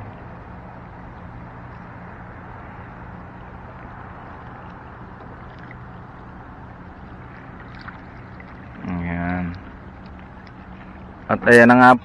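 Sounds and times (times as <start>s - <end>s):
low motor hum: 0.0s - 12.0s
water washing: 3.5s - 12.0s.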